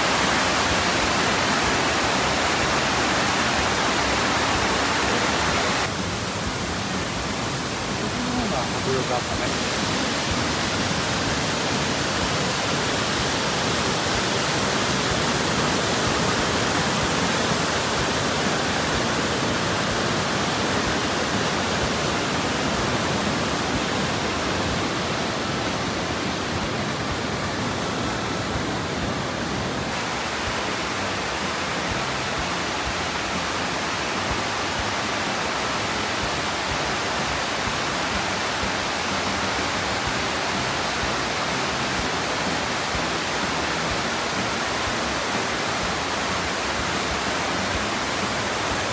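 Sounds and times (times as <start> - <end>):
waterfall rushing: 0.0 - 48.9.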